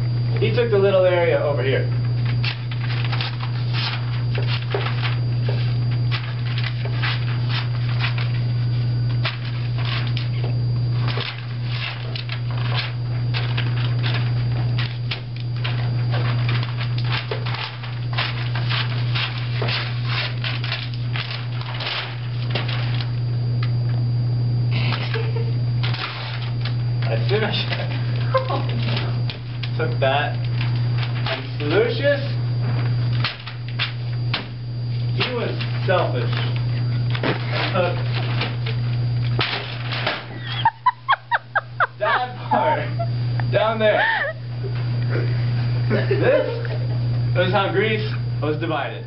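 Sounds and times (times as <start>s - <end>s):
steady low hum: 0.0s - 49.0s
paper rustling and crinkling: 1.9s - 23.3s, 24.8s - 40.5s.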